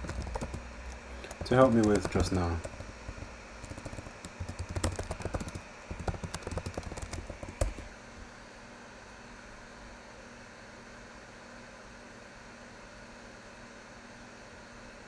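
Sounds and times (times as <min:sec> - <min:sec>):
keyboard key clicks: 0:00.0 - 0:07.9.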